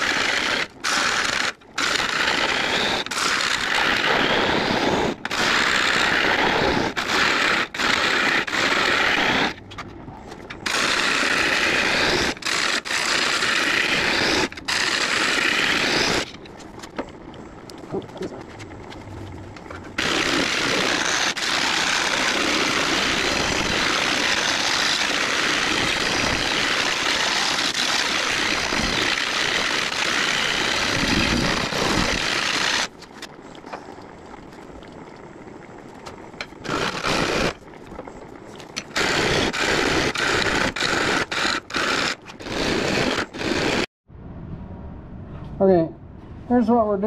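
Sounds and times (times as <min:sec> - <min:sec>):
gouge cutting wood shearing hiss: 0:00.0 - 0:09.6, 0:10.6 - 0:16.4, 0:19.9 - 0:34.0, 0:36.1 - 0:38.2, 0:38.8 - 0:43.9
wood lathe running: 0:00.0 - 0:09.6, 0:10.6 - 0:16.6, 0:19.6 - 0:33.3, 0:36.4 - 0:38.1, 0:38.8 - 0:43.9.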